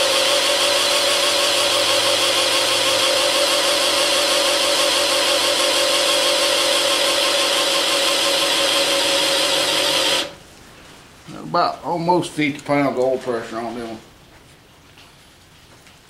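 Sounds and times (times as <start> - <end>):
cordless drill whining: 0.0 - 10.4.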